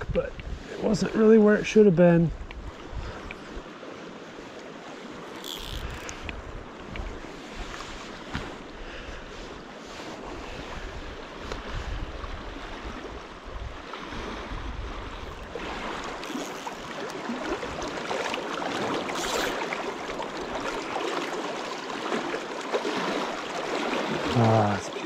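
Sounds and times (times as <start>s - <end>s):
wind rumbling on microphone: 0.0s - 3.8s, 5.1s - 21.0s
river water rushing and splashing: 0.6s - 25.0s.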